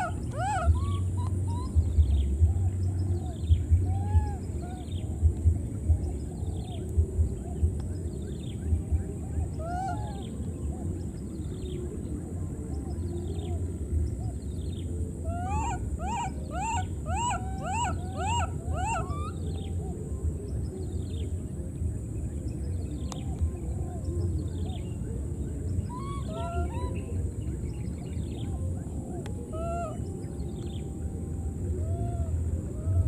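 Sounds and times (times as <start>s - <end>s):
baby monkeys squealing: 0.0s - 1.8s, 15.3s - 19.4s
steady low rumble: 0.0s - 33.0s.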